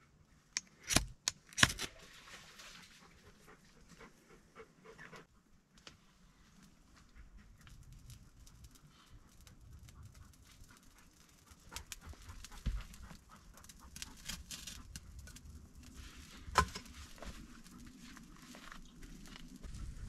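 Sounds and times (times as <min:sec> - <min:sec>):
dog panting: 0:02.9 - 0:05.5, 0:08.8 - 0:15.0
twigs crackling in small fire: 0:05.7 - 0:20.0.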